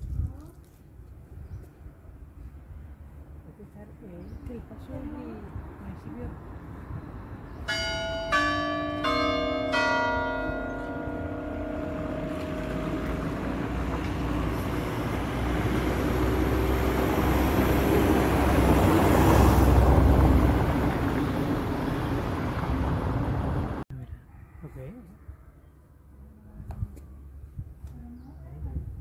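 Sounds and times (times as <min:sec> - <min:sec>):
church bell ringing: 0:07.6 - 0:15.8
passing vehicle rushing: 0:10.4 - 0:23.8.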